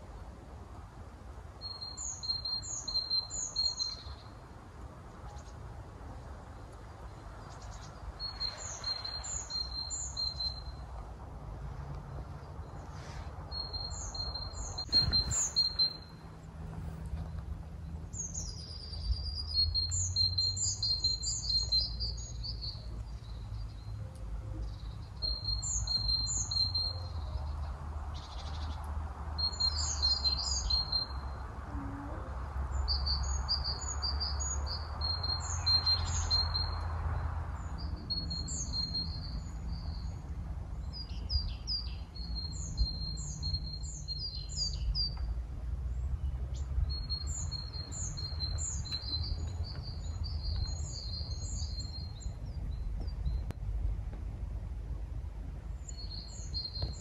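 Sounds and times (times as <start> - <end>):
songbirds chirping: 0.0 - 57.0
soft rushing sound: 14.8 - 16.0
steady low rumble: 45.2 - 57.0.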